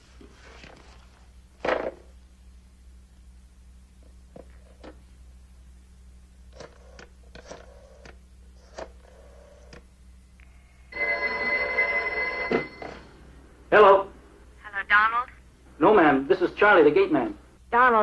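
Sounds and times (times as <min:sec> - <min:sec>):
telephone bell ringing: 0:10.9 - 0:13.2.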